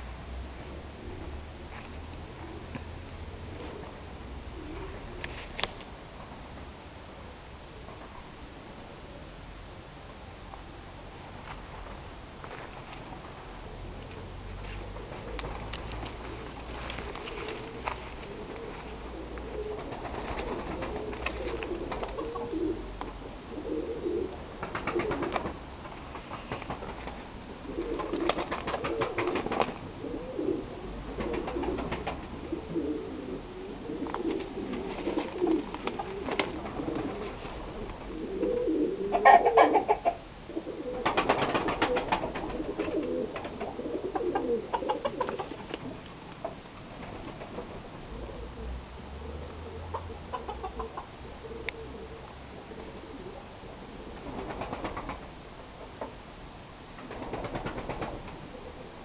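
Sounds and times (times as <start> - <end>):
chickens clucking: 16.4 - 22.8, 33.9 - 40.2, 41.8 - 46.6, 49.5 - 52.1.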